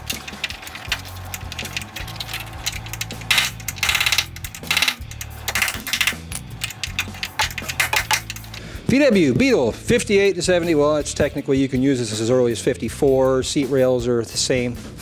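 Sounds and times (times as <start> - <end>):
welder crackling: 0.0 - 9.1
background music: 0.0 - 15.0.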